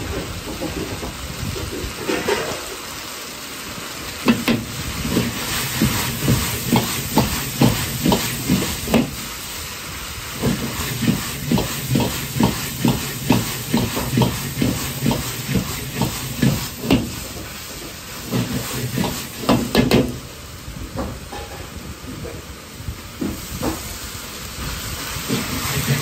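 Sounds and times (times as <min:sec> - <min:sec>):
wok frying hiss: 0:00.0 - 0:26.0
ladle knocking on wok: 0:04.3 - 0:09.2, 0:10.4 - 0:17.2, 0:18.3 - 0:20.1.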